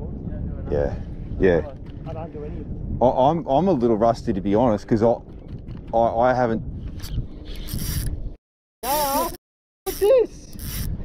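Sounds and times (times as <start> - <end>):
fishing reel whirring and clicking: 7.0 - 8.2, 8.8 - 11.0
person speaking: 8.8 - 10.3.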